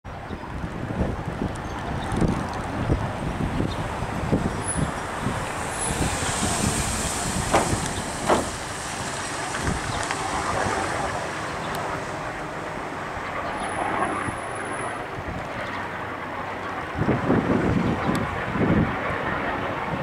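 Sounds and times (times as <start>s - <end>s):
helicopter rotor beat: 0.2s - 20.0s
sharp helicopter thumps: 7.5s - 8.7s.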